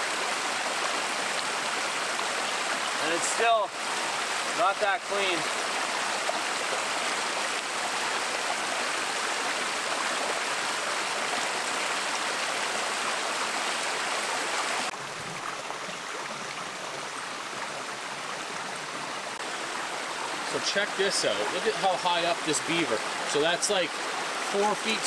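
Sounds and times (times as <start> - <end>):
stream rushing over stones: 0.0 - 25.0.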